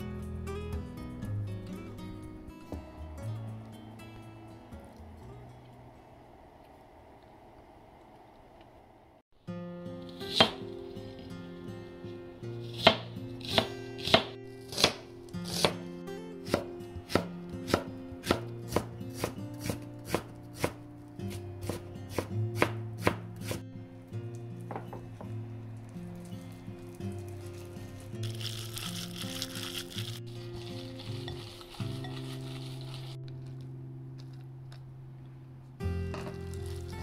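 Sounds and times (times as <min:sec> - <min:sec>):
light background music: 0:00.0 - 0:06.0, 0:09.5 - 0:34.7, 0:35.8 - 0:37.0
knife chopping on wooden board: 0:10.3 - 0:10.6, 0:12.8 - 0:15.8, 0:16.4 - 0:20.8, 0:21.6 - 0:23.6.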